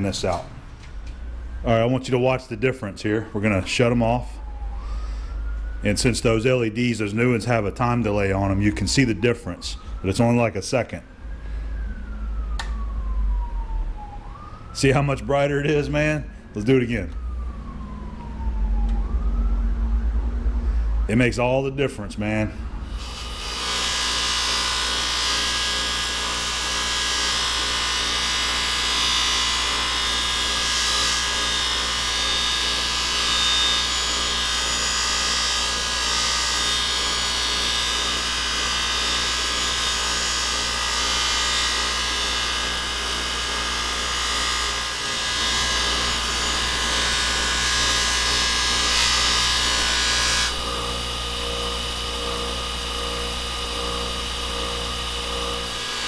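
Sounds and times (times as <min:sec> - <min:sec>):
bench grinder motor hum: 0:22.8 - 0:56.0.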